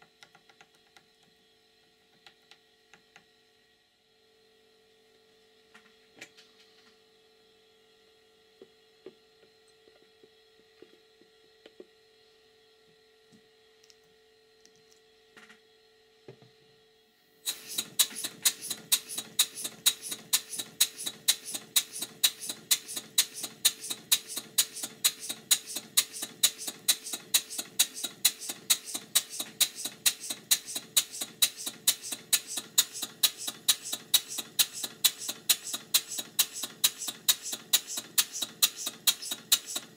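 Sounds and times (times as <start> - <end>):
steam engine exhaust puffs: 17.4 - 39.9.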